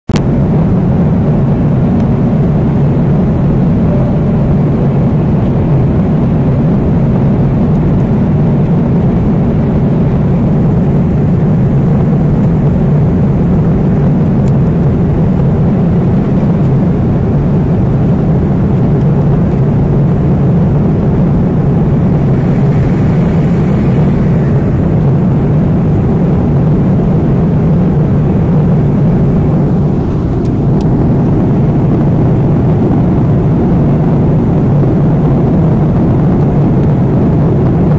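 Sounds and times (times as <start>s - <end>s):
airliner cabin engine rumble: 0.1s - 37.9s.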